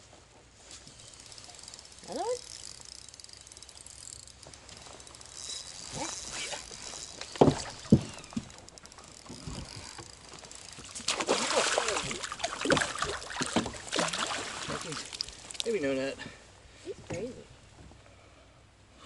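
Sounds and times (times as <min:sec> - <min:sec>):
fishing reel clicking whir: 0:00.9 - 0:11.1
sharp knocks: 0:07.4 - 0:08.5.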